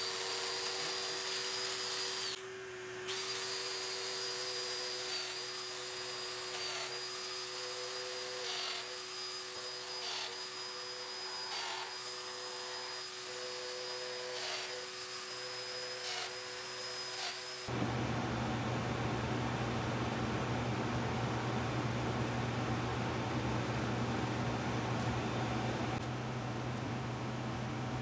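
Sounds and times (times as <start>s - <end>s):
wood cutting noise: 0.0s - 18.6s
shop vacuum droning: 0.0s - 28.0s.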